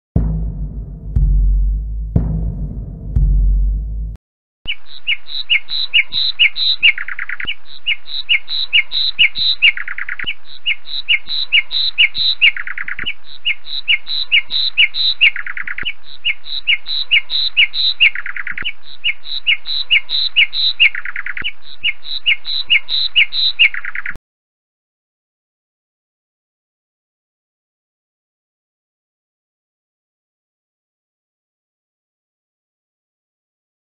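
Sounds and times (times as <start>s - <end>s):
music burst: 0.2s - 4.2s
lapwing calling: 4.7s - 24.2s.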